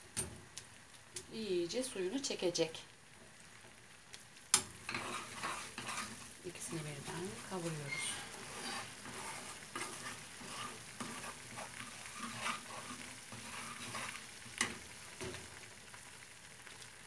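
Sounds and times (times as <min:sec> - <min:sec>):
soft sizzle in frying pan: 0:00.0 - 0:17.0
spatula stirring cheese in pan: 0:03.4 - 0:16.8
spoon scraping pan: 0:04.8 - 0:15.4.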